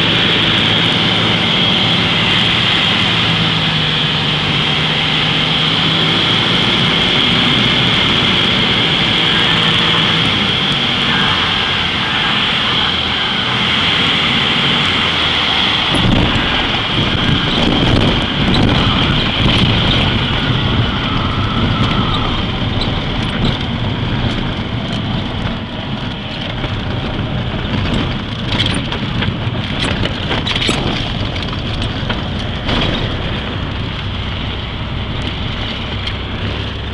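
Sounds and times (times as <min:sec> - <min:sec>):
airplane engine and propeller: 0:00.0 - 0:36.9
rushing air: 0:00.0 - 0:36.9
clicks and rattles: 0:22.8 - 0:34.1.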